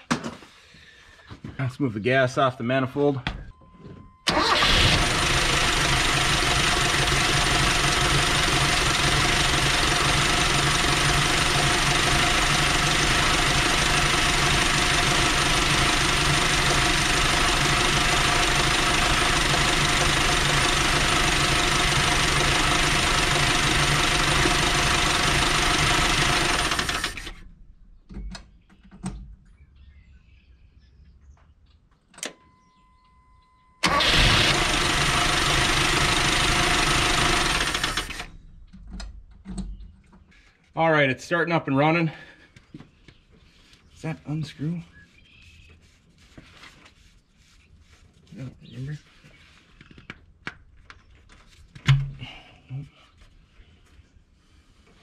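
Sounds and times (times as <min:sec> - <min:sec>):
engine idling: 0:04.2 - 0:27.5, 0:33.8 - 0:38.5.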